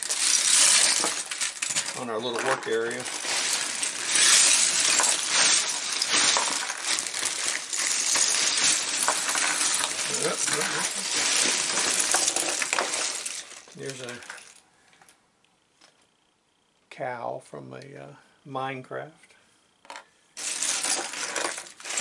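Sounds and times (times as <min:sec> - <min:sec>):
plastic bricks clattering: 0:00.0 - 0:14.6, 0:19.9 - 0:22.0.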